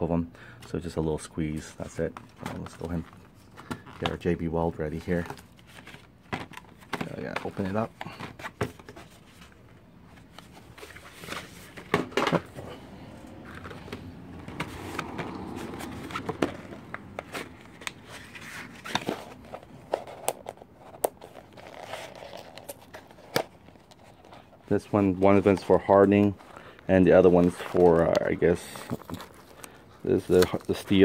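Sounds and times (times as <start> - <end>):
plastic packaging crinkling: 13.2 - 31.0.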